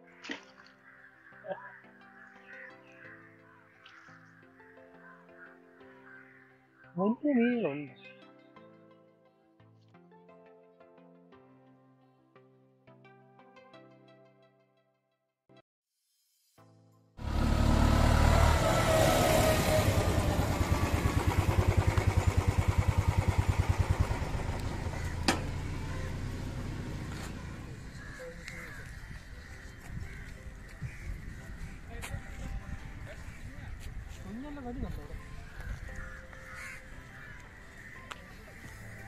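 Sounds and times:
faint background music melody: 0.0 - 14.8, 27.8 - 39.0
vehicle engine running: 17.2 - 29.4.

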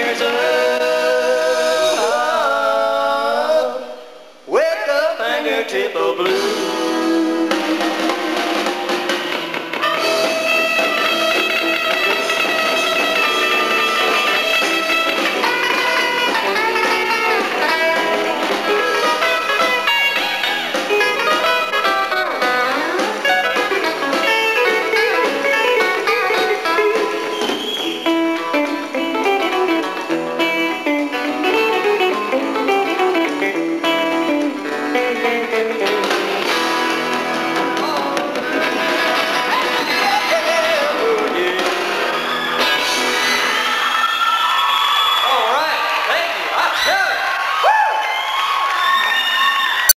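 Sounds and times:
live country blues band: 5.5 - 45.3
electric guitars: 6.0 - 45.2
drum kit: 6.1 - 45.2.

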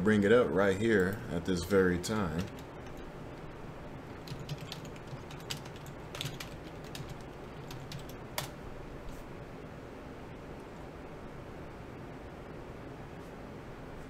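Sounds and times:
typing on computer keyboard: 2.3 - 3.0, 4.2 - 8.6.

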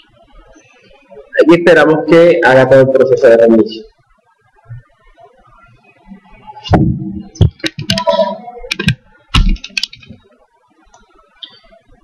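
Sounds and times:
keyboard and mouse clicks: 7.4 - 10.2.

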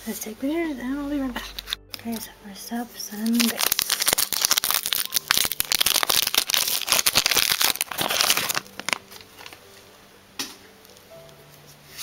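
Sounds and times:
foil wrapper crinkling: 3.1 - 9.6.

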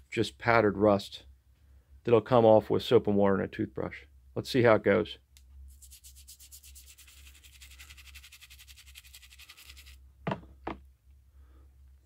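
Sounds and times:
toothbrush scrubbing plastic: 5.7 - 10.0.

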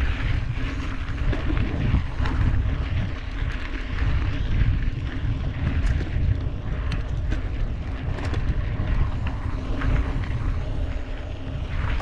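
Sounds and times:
bike rattles and clicks: 0.0 - 12.0
bike tyre noise: 0.0 - 12.0
wind buffeting microphone: 0.0 - 12.0.

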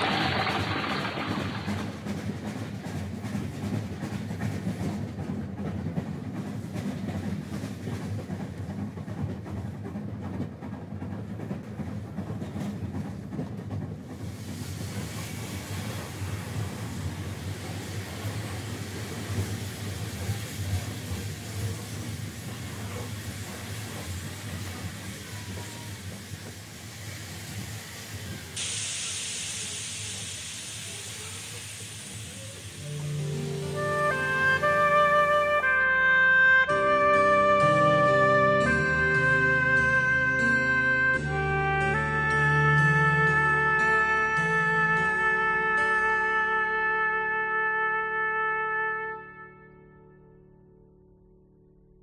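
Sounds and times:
hiss: 0.0 - 5.2, 14.0 - 35.4
model train rumbling on track: 0.0 - 48.9.

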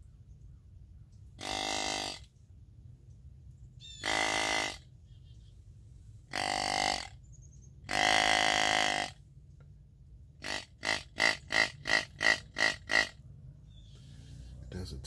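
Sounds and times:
deer grunt call: 1.4 - 2.3, 4.0 - 4.9, 6.3 - 7.2, 7.9 - 9.2, 10.4 - 13.2.

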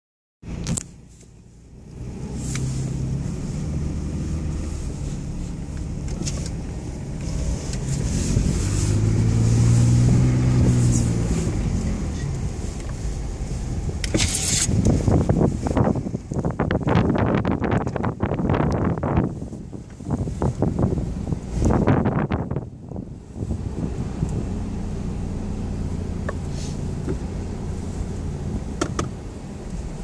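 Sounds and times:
car engine running: 0.4 - 30.0
wind buffeting microphone: 6.8 - 24.7.

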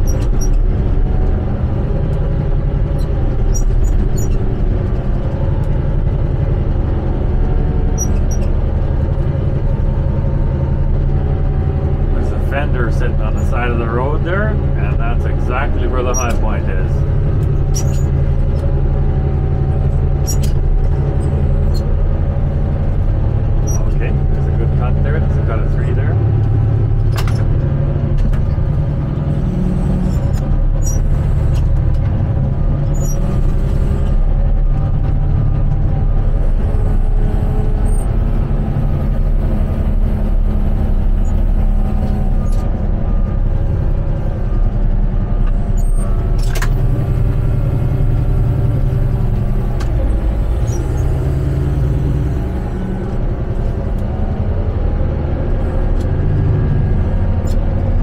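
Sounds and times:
diesel engine rumbling: 0.0 - 58.0.

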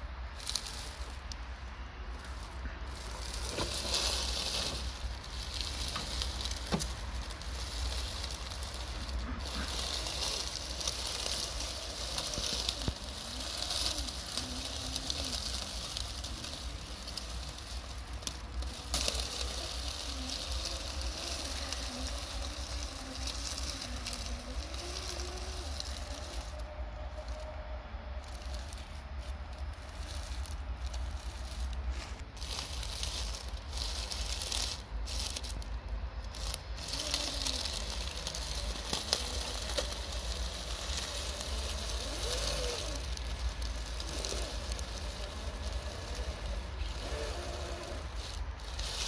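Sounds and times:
dry leaves crackling under tyres: 0.0 - 49.0
twigs snapping: 2.2 - 49.0.

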